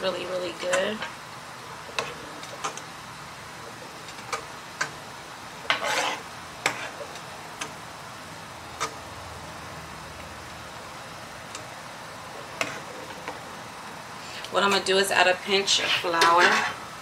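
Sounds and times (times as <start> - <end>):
spatula scraping pan: 0.1 - 2.9, 3.6 - 7.7, 12.3 - 13.5, 14.6 - 17.0
sauce sizzling in a pan: 0.1 - 17.0.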